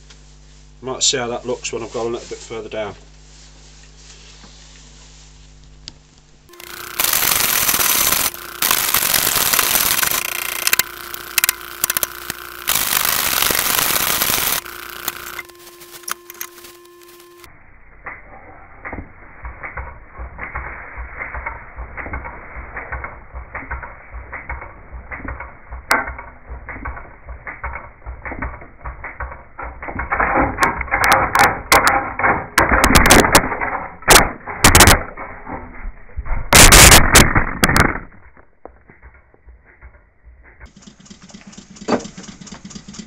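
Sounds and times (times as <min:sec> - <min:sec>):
loud clattering burst: 0:06.5 - 0:15.4, 0:32.6 - 0:35.6, 0:36.5 - 0:42.8.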